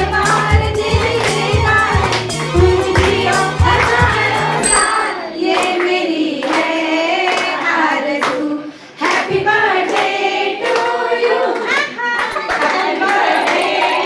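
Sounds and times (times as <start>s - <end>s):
women singing in unison: 0.0s - 14.0s
hand-clapping: 1.0s - 4.1s, 5.5s - 8.4s, 9.0s - 14.0s.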